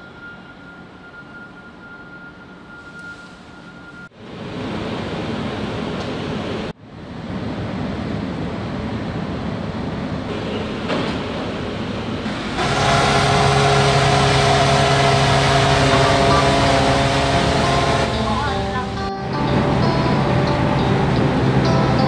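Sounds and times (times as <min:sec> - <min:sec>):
wind: 0:00.0 - 0:22.0
ship engine noise: 0:02.4 - 0:22.0
drone with held tones: 0:12.6 - 0:22.0.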